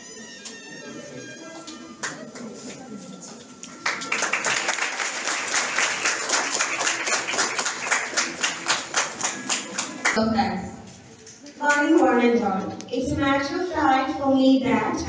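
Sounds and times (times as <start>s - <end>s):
people applauding: 0.4s - 10.2s.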